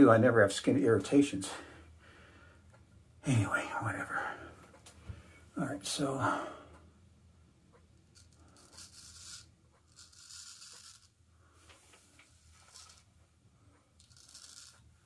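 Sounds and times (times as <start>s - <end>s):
razor rasping through beard: 8.2s - 11.2s, 12.6s - 13.0s, 14.0s - 14.8s.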